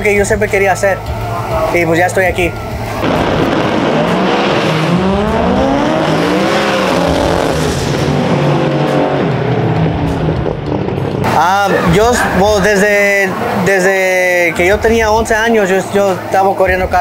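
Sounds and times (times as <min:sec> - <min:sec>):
drag car engines accelerating: 0:00.9 - 0:14.5.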